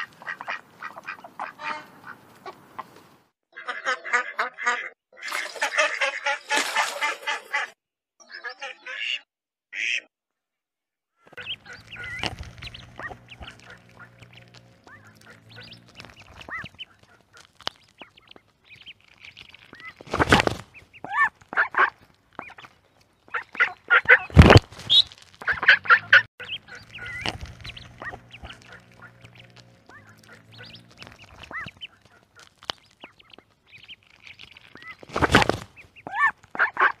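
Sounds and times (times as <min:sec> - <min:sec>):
ducklings peeping: 0:00.0 - 0:03.0, 0:11.3 - 0:37.0
mallards quacking: 0:00.0 - 0:10.1, 0:11.3 - 0:37.0
low steady hum: 0:11.4 - 0:17.2
loud thumps: 0:24.3 - 0:25.0.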